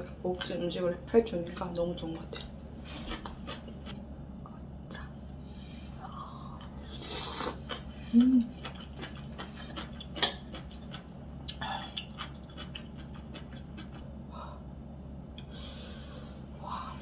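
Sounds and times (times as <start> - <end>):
low steady hum: 0.0 - 17.0
soft chewing: 2.2 - 14.2.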